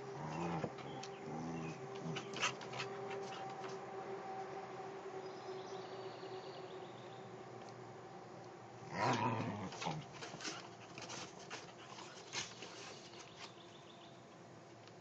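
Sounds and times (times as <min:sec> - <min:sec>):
dog growling: 0:00.0 - 0:03.4, 0:08.9 - 0:11.2
clicks and scuffles on wooden deck: 0:09.7 - 0:13.8.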